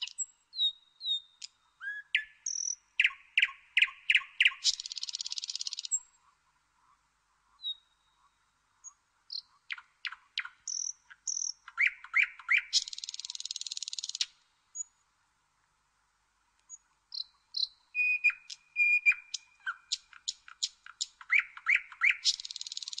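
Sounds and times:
nightingale singing: 0.0 - 6.3, 7.5 - 15.0, 16.6 - 23.0.

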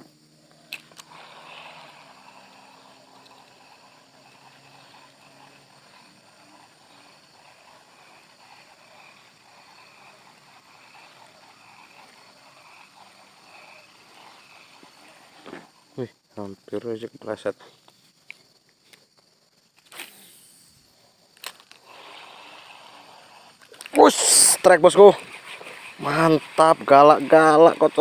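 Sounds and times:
distant engine hum: 0.0 - 16.0
soft repeating pulses: 0.0 - 16.3.

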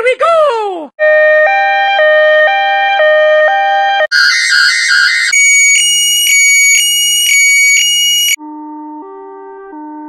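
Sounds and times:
sped-up warbling siren: 1.0 - 8.4
two-tone ambulance siren: 1.0 - 8.4.

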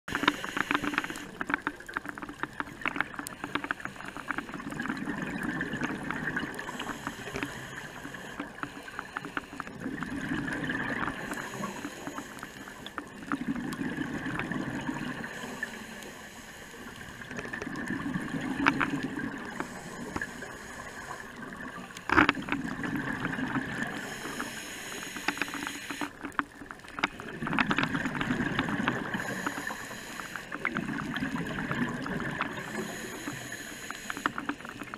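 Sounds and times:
scuba breathing: 0.1 - 2.0, 3.2 - 26.4, 27.0 - 34.9
clicks and crackle: 0.1 - 34.9
constant hiss: 0.1 - 34.9
exhaled bubbles rumbling: 1.4 - 8.2, 9.6 - 12.0, 13.0 - 15.8, 16.9 - 24.2, 26.5 - 29.5, 30.5 - 33.5.

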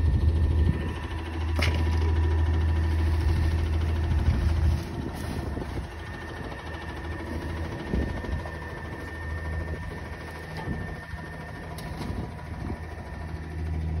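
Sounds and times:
garbage truck engine idling: 0.0 - 14.0.

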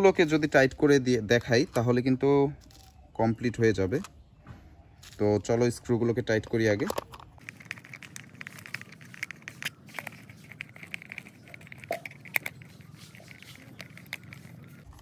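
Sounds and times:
metal scraping on plastic: 6.8 - 15.0.

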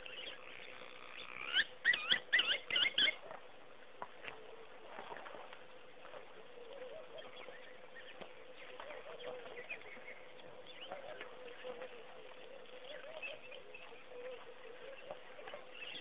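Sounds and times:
birds chirping: 0.0 - 3.3, 6.0 - 16.0
soft water splashes: 0.0 - 16.0.

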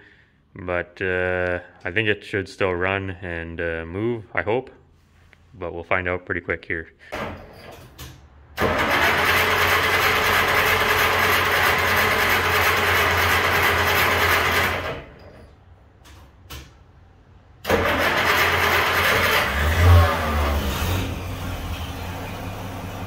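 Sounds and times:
car engine starting: 8.5 - 15.2, 17.6 - 23.0.

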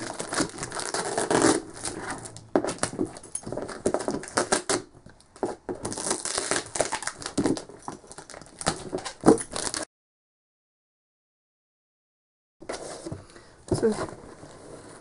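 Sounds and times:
plastic wrap crinkling: 0.0 - 4.8, 5.8 - 9.9
packing tape and cardboard ripping: 0.0 - 9.9.

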